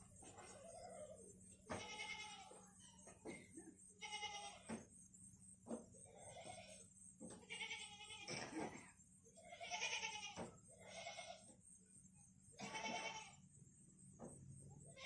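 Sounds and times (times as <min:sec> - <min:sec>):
goats bleating: 0:01.7 - 0:02.6, 0:04.0 - 0:04.7, 0:06.1 - 0:06.8, 0:07.4 - 0:08.6, 0:09.4 - 0:11.5, 0:12.6 - 0:13.4.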